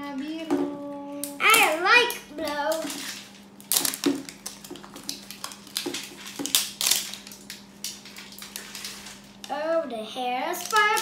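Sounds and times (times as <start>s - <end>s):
wrapping crackling as torn off: 1.2s - 9.5s, 10.5s - 11.0s.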